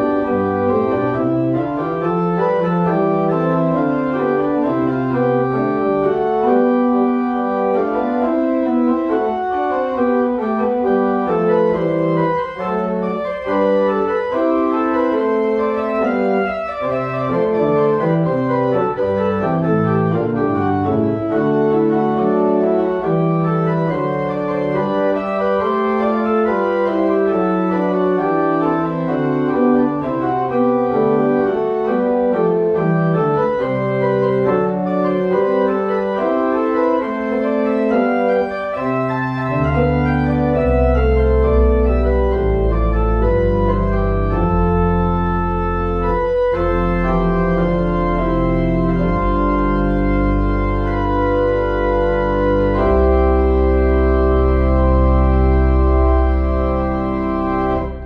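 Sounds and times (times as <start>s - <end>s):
deep organ pedal bass notes: 0.0s - 58.0s
pipe organ chords: 0.0s - 58.0s.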